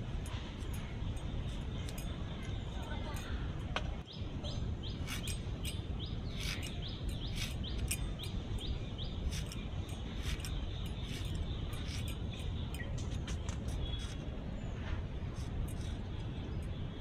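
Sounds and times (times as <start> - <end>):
bird chirping: 0.0 - 17.0
steady low rumble: 0.0 - 17.0.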